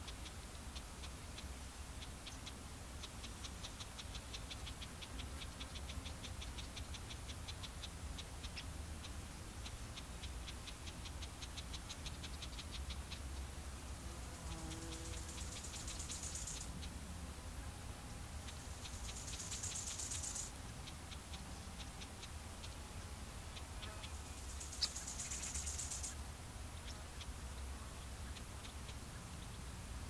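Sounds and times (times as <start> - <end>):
dry high-pitched ticks: 0.0 - 13.5, 14.3 - 17.0, 18.4 - 26.2.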